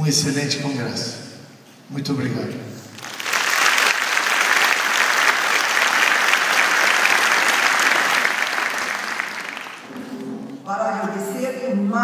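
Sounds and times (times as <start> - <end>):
audience applauding: 3.0 - 10.2.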